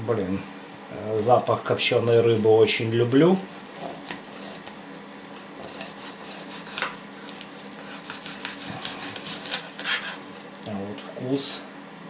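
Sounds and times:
knife sawing through smoked fish: 0:03.5 - 0:10.4.

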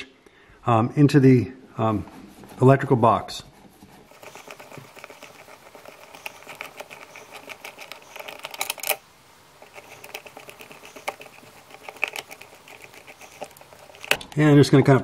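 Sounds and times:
screwdriver clicking and scraping metal: 0:04.1 - 0:09.0, 0:09.6 - 0:14.4.

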